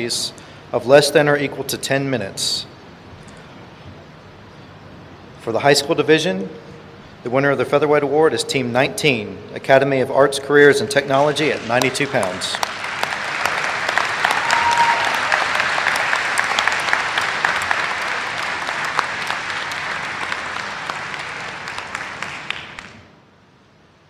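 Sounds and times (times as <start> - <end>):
audience applauding: 11.1 - 23.1.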